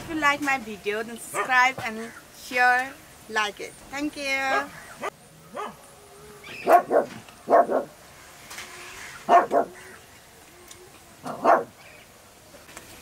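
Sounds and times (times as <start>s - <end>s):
dog barking: 1.3s - 1.6s, 4.5s - 5.8s, 6.6s - 7.9s, 9.3s - 9.8s, 11.2s - 11.8s.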